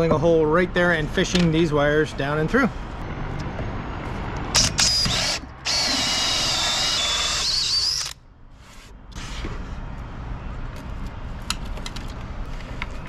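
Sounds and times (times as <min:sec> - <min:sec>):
power drill whining: 0:04.6 - 0:08.2.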